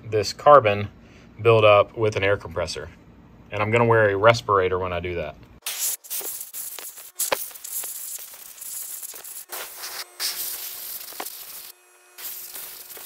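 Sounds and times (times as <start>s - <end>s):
compressed air hissing: 5.6s - 13.0s.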